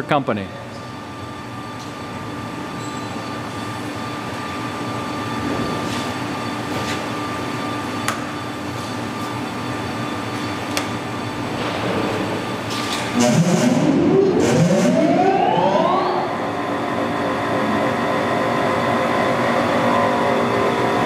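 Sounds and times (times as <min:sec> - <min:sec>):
grinder machine hum: 0:11.4 - 0:21.0.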